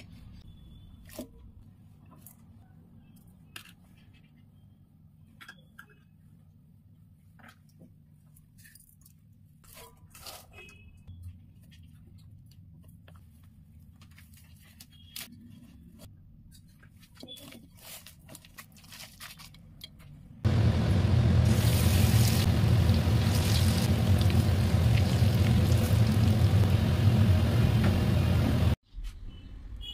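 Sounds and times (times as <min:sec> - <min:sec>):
batter sizzling in hot oil: 0:20.6 - 0:28.4.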